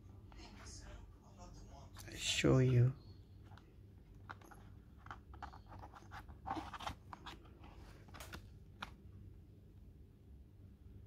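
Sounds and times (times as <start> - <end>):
clicks and rustles of handling: 3.4 - 9.0.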